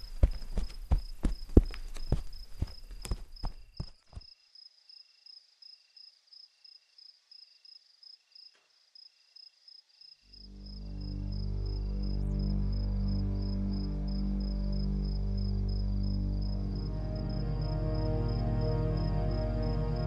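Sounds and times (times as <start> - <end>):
footsteps: 0.0 - 4.3
crickets chirping: 0.0 - 20.0
low music drone: 10.5 - 20.0.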